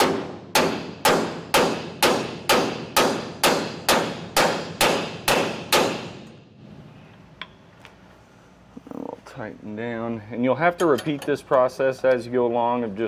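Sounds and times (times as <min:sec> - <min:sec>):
hammer striking metal bolt: 0:00.0 - 0:06.4.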